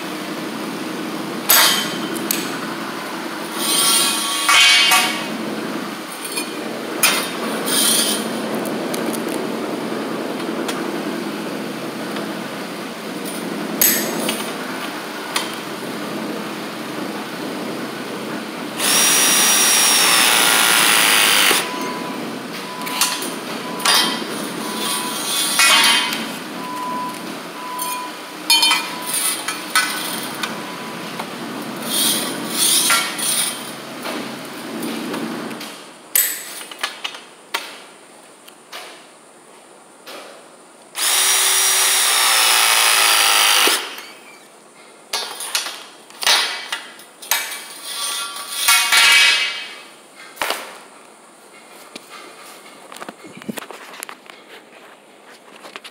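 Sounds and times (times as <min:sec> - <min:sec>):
press tool motor whining: 0:18.8 - 0:21.8, 0:41.0 - 0:44.2.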